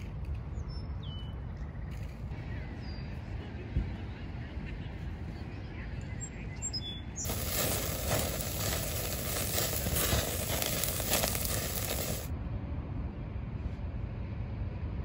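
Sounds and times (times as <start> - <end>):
food sizzling on a grill: 7.3 - 12.3.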